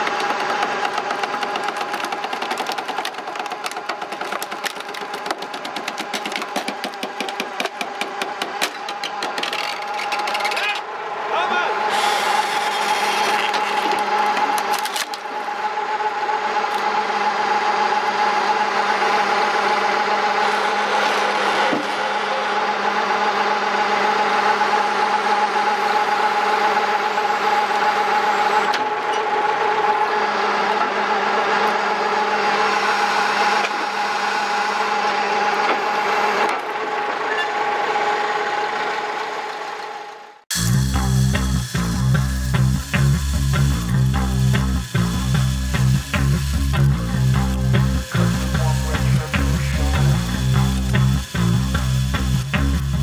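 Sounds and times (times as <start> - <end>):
hydraulic log splitter whine: 0.0 - 53.0
log cracking: 0.3 - 7.4.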